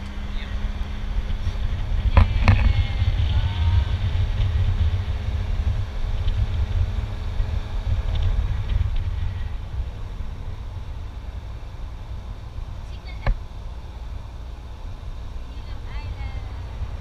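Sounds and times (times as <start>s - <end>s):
road noise: 0.0s - 17.0s
wind buffeting microphone: 0.0s - 17.0s.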